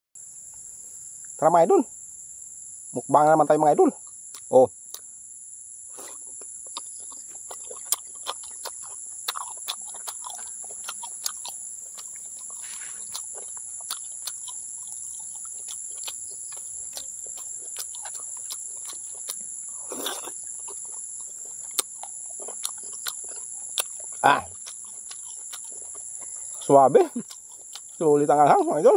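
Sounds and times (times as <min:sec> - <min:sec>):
high insect drone: 0:00.2 - 0:28.9
wet chewing clicks: 0:04.0 - 0:05.1, 0:06.0 - 0:28.9
slurp: 0:05.9 - 0:06.3, 0:12.5 - 0:13.3, 0:19.7 - 0:20.8.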